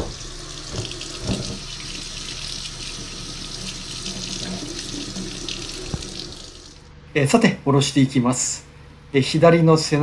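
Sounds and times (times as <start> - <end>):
tap water splashing into sink: 0.0 - 6.6.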